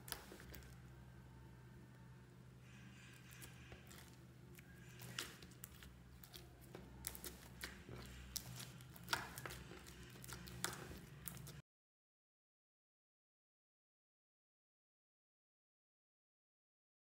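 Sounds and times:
slime squishing with popping beads: 0.0 - 0.8, 3.2 - 11.6.

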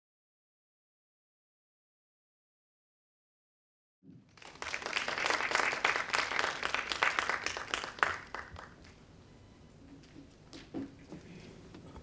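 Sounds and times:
audience applauding: 4.3 - 9.0.

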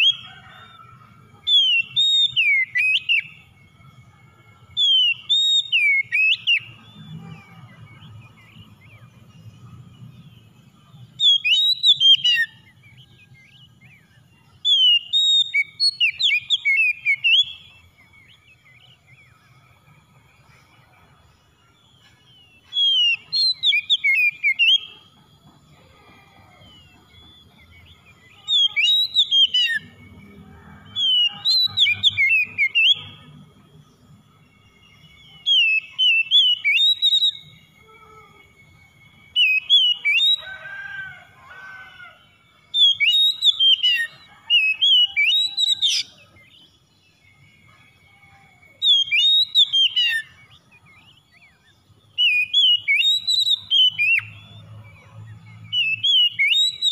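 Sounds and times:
bird singing whistled phrases: 0.0 - 0.7, 1.5 - 3.9, 4.7 - 9.0, 11.0 - 19.4, 22.4 - 25.0, 26.6 - 30.2, 30.9 - 33.4, 34.1 - 40.6, 42.8 - 46.6, 47.2 - 54.7, 55.7 - 56.9.

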